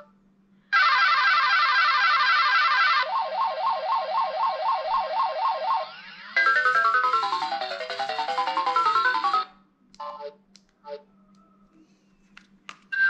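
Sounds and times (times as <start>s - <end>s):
phone electronic alarm tone: 1.6s - 9.5s.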